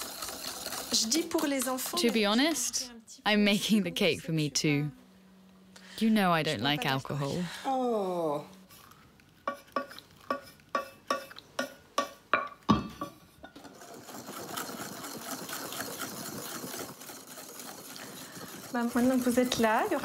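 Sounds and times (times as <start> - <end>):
wire whisk swishing in batter: 0.0 - 2.5, 13.6 - 20.0.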